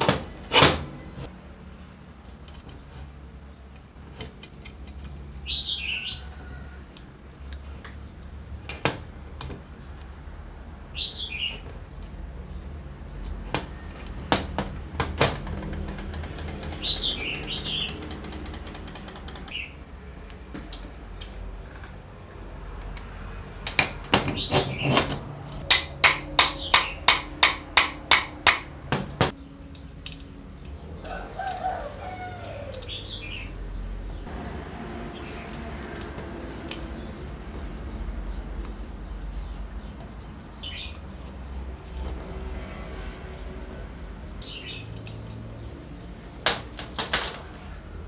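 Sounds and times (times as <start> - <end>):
small birds chirping: 4.9 - 6.8, 10.9 - 13.5, 16.6 - 18.2, 19.4 - 19.8, 29.3 - 34.3, 36.7 - 42.2, 44.2 - 46.4
drill parts clicking and knocking: 17.8 - 19.5.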